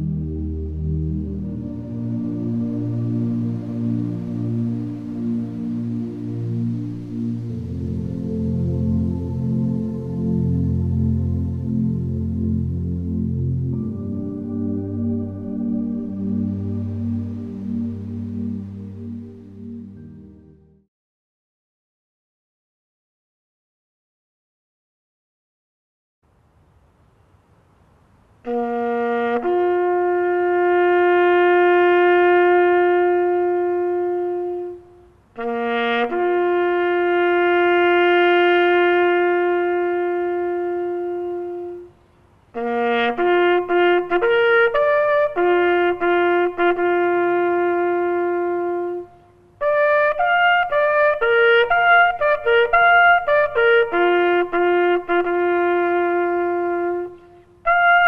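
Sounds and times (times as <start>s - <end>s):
bugle call: 28.5s - 42.0s, 42.6s - 58.0s.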